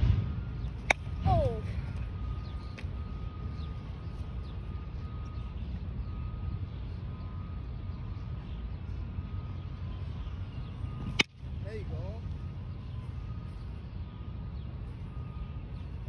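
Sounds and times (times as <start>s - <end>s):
low rumble: 0.0s - 9.5s
birds chirping: 0.4s - 16.0s.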